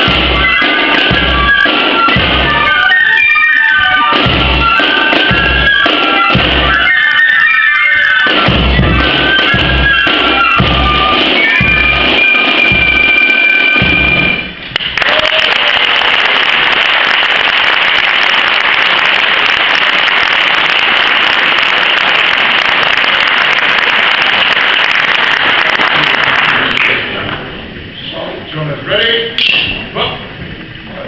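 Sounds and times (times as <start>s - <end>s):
fifes playing: 0.0s - 14.6s
drum beats: 0.0s - 27.1s
audience applause: 14.7s - 27.2s.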